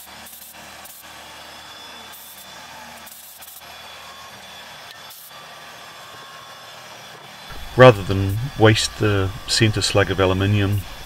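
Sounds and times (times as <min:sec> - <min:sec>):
milling machine cutting metal: 0:00.0 - 0:11.0
compressed air bursts: 0:07.5 - 0:11.0.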